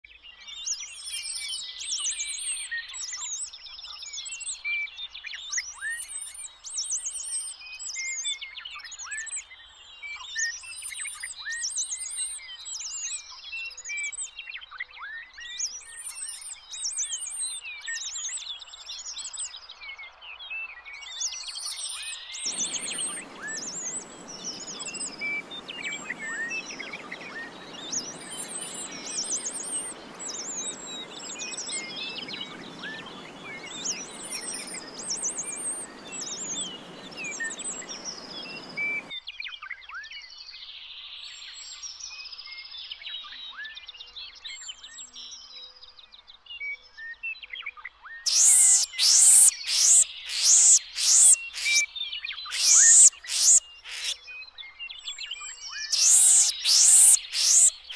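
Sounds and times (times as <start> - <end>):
high quick chirping calls: 22.5 - 39.1, 48.3 - 54.2, 55.9 - 57.9
steady rushing noise: 22.5 - 39.1.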